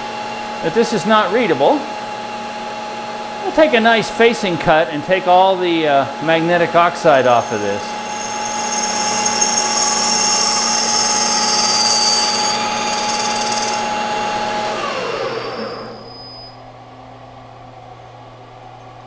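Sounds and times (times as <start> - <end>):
lathe spinning down: 6.8 - 16.6
metal platter ringing: 7.1 - 14.0
low hum: 7.1 - 14.4.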